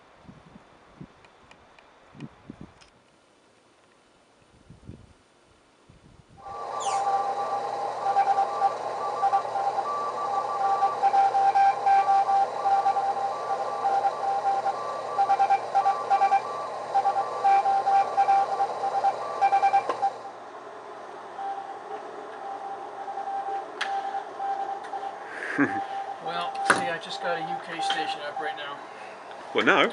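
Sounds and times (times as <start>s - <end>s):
morse code tone: 6.4s - 20.4s, 21.3s - 28.8s
radio band hiss: 6.4s - 20.4s, 21.4s - 29.9s
fainter higher morse signal: 6.4s - 20.5s, 21.3s - 29.2s.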